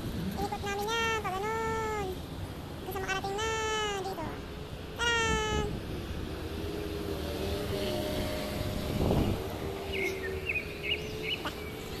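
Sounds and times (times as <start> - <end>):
traffic hum: 0.0 - 12.0
bird chirping: 9.9 - 12.0.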